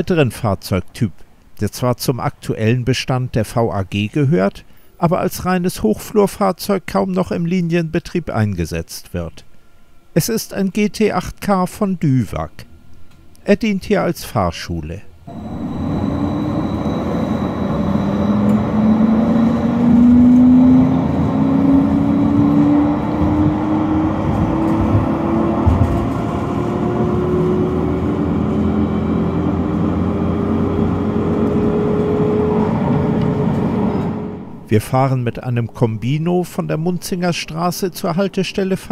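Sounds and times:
wheels rumbling on rails: 0:15.3 - 0:34.7
tram motor whine rising: 0:15.3 - 0:34.8.

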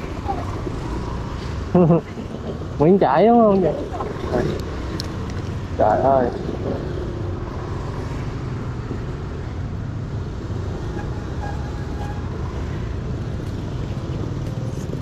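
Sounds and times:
motorbike engine rumbling: 0:00.0 - 0:15.0
street traffic: 0:00.0 - 0:15.0.

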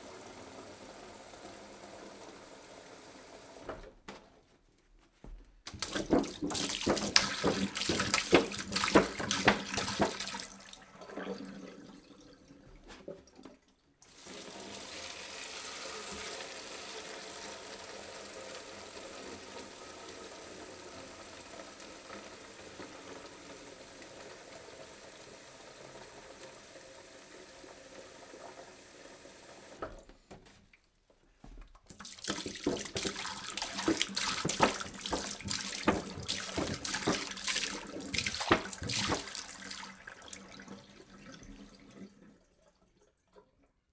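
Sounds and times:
water splashing and spattering: 0:05.7 - 0:10.8, 0:31.8 - 0:40.6
water pouring: 0:05.7 - 0:17.4, 0:31.8 - 0:43.8.

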